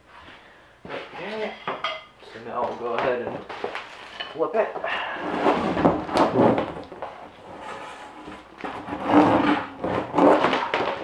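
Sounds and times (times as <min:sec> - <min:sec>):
plastic sheet scraping and flapping: 0:05.2 - 0:11.0.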